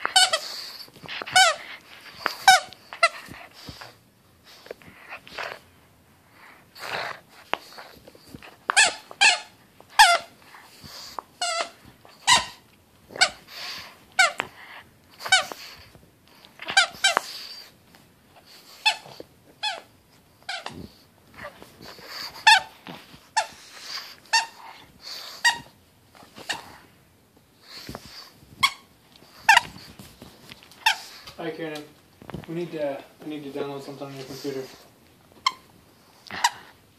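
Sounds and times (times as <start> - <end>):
dog toy squeaking: 0.0 - 3.4, 8.6 - 10.4, 11.4 - 13.5, 14.1 - 14.5, 15.2 - 15.6, 16.6 - 17.4, 18.8 - 25.8, 28.6 - 29.8, 30.8 - 31.1, 35.4 - 35.7.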